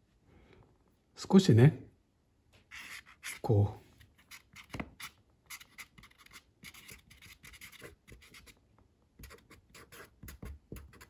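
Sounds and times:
pen scratching on paper: 2.7 - 3.5, 4.2 - 8.6, 9.2 - 11.0.

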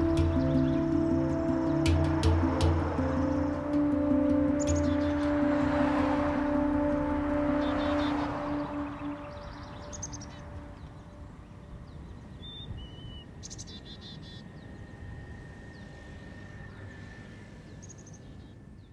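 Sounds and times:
whistled bird notes: 0.0 - 5.5, 6.4 - 11.2
low rumble: 0.0 - 11.3
low held musical tone: 0.0 - 12.3
small birds chirping: 7.6 - 14.8.

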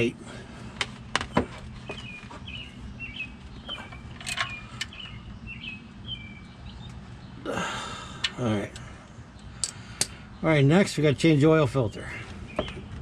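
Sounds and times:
small bird chirping: 1.3 - 7.4.

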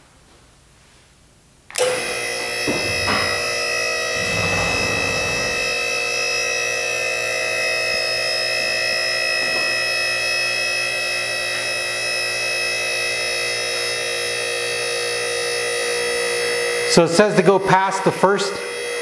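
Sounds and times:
electric motor and hydraulic pump whine: 1.8 - 5.8.

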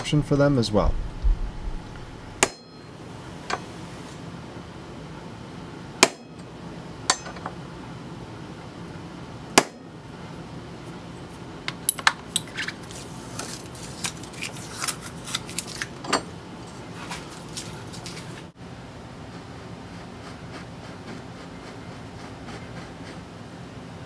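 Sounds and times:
hammer striking steel punch: 2.4 - 2.9, 6.0 - 6.4, 7.1 - 7.4, 9.5 - 9.8.

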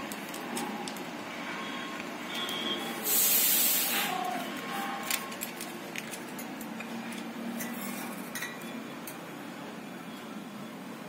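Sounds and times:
hissy rush of noise: 2.9 - 4.3.

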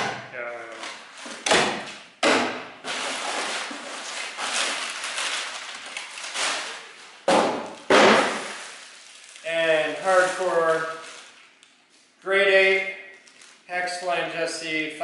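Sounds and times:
packing paper rustling and crackling: 2.8 - 12.2, 13.2 - 13.7.

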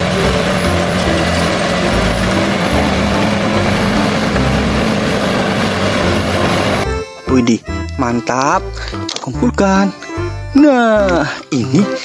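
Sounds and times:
bulldozer diesel engine running: 0.0 - 8.9.

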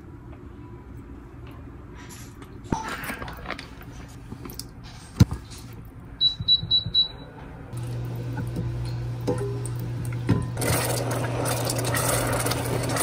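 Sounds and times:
cooktop low hum: 0.0 - 13.0
cooktop control beeps: 6.2 - 7.3.

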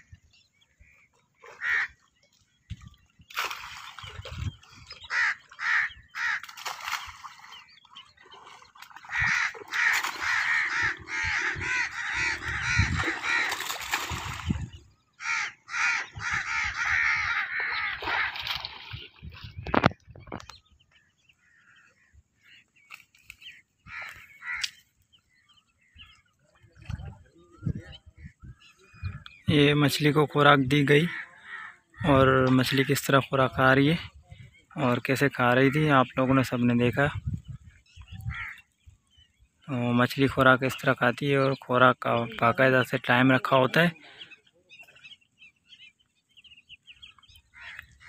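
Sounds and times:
birds calling: 0.0 - 48.0
crows cawing: 1.5 - 2.0, 5.1 - 6.9, 9.0 - 14.3, 15.1 - 18.6, 23.8 - 24.8, 31.0 - 32.1, 47.5 - 48.0.

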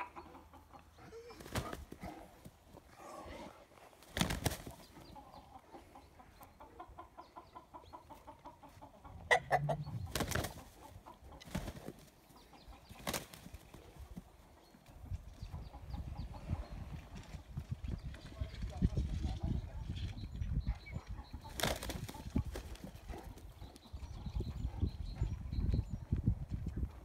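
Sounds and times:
wing flapping: 4.0 - 4.8, 10.0 - 10.8, 12.9 - 13.8, 21.5 - 23.0
rooster clucking: 5.2 - 11.5.

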